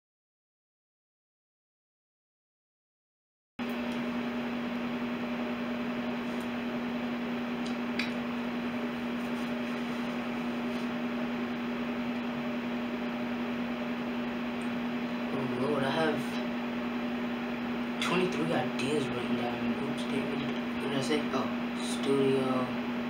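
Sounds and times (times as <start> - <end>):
steady hum: 3.6 - 23.0.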